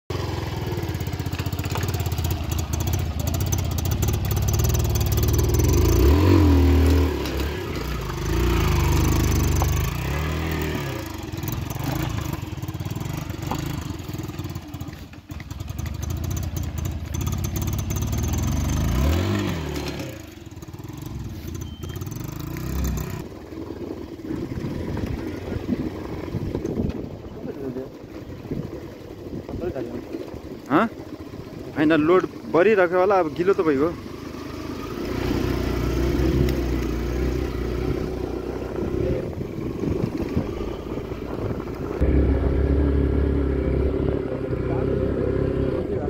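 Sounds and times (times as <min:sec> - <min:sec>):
motorcycle engine revving: 0:00.1 - 0:46.0
clattering on bumpy ground: 0:11.2 - 0:18.5.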